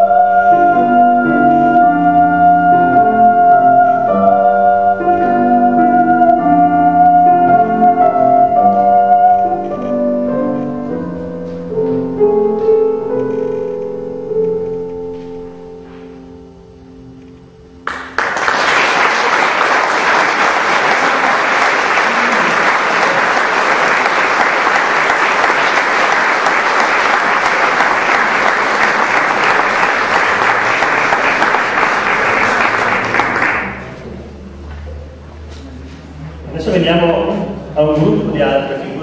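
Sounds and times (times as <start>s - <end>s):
piano chord: 0.0s - 35.4s
audience applauding: 17.8s - 34.2s.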